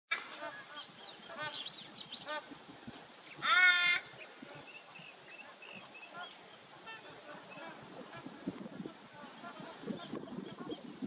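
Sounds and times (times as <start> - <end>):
small birds chirping: 0.2 - 11.0
crow call: 3.4 - 4.1.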